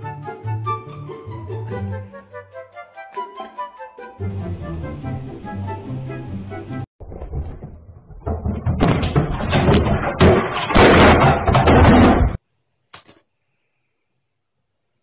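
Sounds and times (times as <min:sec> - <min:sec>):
background music: 0:00.0 - 0:06.9
rapid clatter of knocks and bangs: 0:07.0 - 0:12.4.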